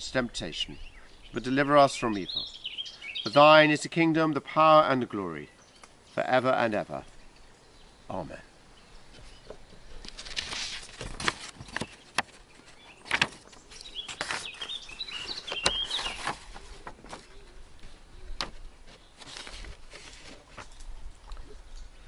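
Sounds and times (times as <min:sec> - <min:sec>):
bird chirping: 0:00.5 - 0:03.6, 0:05.4 - 0:10.0, 0:11.7 - 0:19.4
pages turning: 0:10.0 - 0:21.6.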